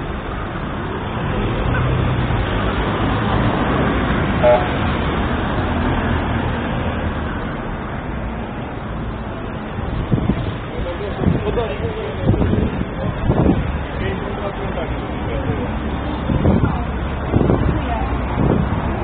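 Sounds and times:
road traffic: 0.0 - 19.0
car horn toot: 4.4 - 4.8.

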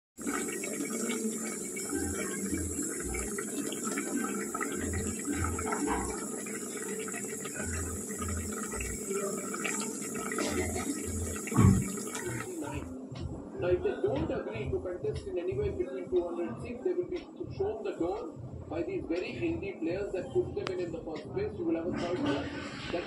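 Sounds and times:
curry bubbling in a pot: 0.2 - 12.7.

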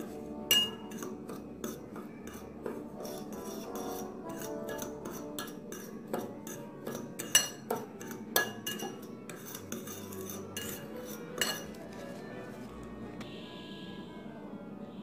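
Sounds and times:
spoon clinking in glass bowl: 0.5 - 11.9.

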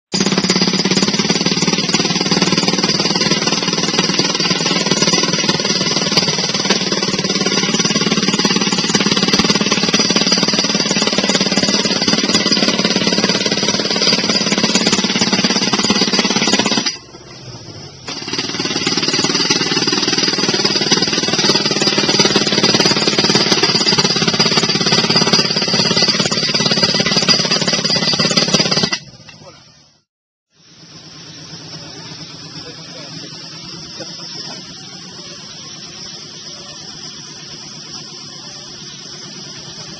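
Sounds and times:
power hammer driving pipe: 0.1 - 29.4.

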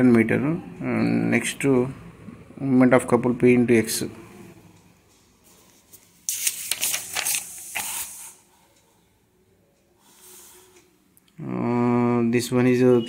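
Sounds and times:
paper page rustling and crinkling: 5.9 - 8.2.

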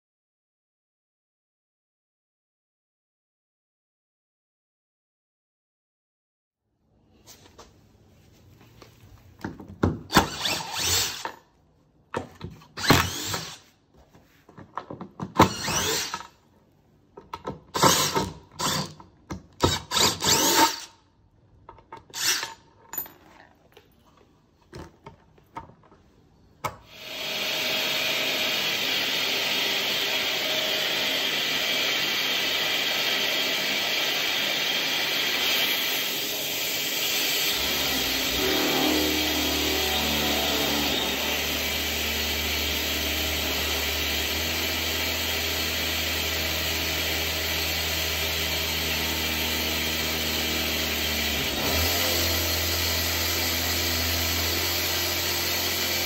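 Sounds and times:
drill driver bursts: 10.1 - 11.4, 12.7 - 13.6, 15.3 - 16.4, 17.7 - 19.0, 19.6 - 21.0, 22.0 - 22.6, 26.8 - 56.0
dust extractor running: 27.0 - 56.0.

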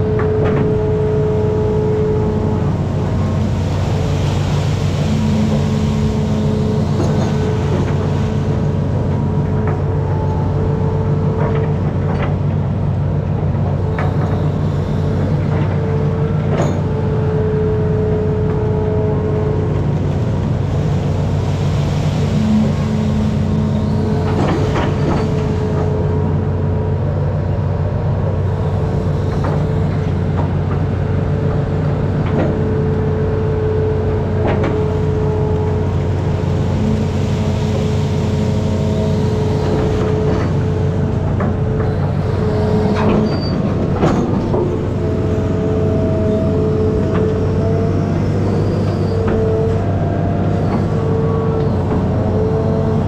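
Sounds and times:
diesel engine running under load: 0.0 - 53.0
hydraulic whine: 13.6 - 53.0
excavator bucket clanks: 39.6 - 45.5.

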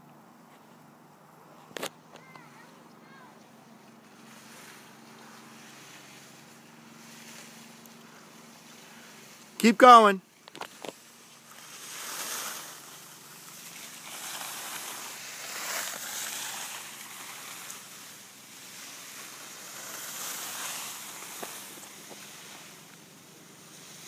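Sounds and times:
skis scraping over snow: 1.6 - 24.0.

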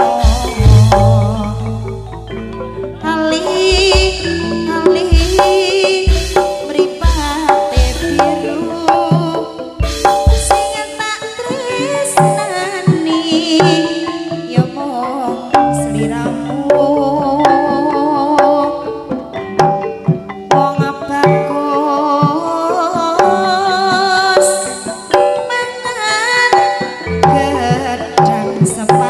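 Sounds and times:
woman singing: 0.0 - 2.2, 3.0 - 19.2, 20.5 - 29.0
hand drum strokes: 0.0 - 18.6.

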